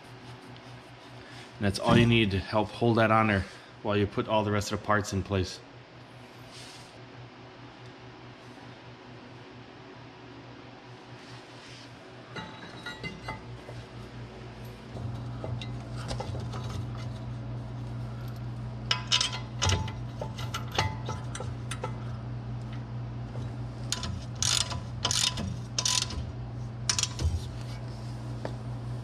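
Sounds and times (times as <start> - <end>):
low steady hum: 0.0 - 29.0
ratchet wrench clicking: 23.9 - 26.3, 26.9 - 27.2.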